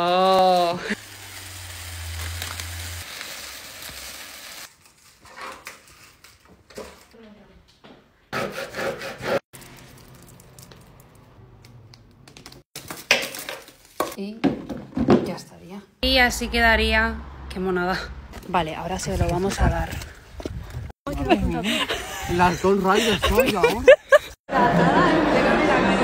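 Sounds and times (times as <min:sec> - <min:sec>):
foam beads pouring: 0:00.0 - 0:05.1, 0:09.6 - 0:11.0
plastic sheets crinkling: 0:00.0 - 0:07.1, 0:09.6 - 0:11.2.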